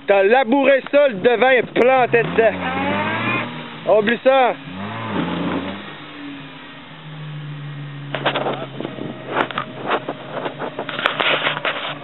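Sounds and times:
pickup engine idling: 0.8 - 12.0
footsteps through wet grass: 8.1 - 12.0.

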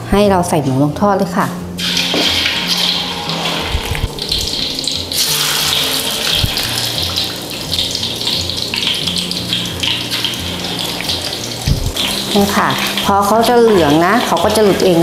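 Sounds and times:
food deep-frying in oil: 1.8 - 15.0.

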